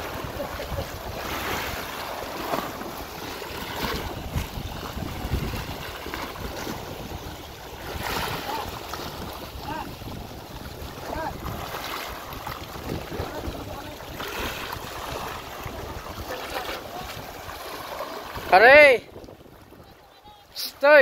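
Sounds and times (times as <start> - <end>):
swimmer splashing: 0.0 - 19.0
water washing against rocks: 0.0 - 19.3
wind rumbling on microphone: 0.0 - 21.0.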